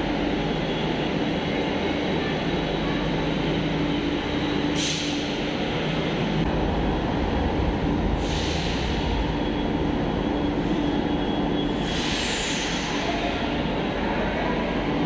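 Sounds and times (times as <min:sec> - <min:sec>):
train hum and rumble: 0:00.0 - 0:15.0
train doors closing: 0:04.6 - 0:05.6, 0:08.1 - 0:13.6.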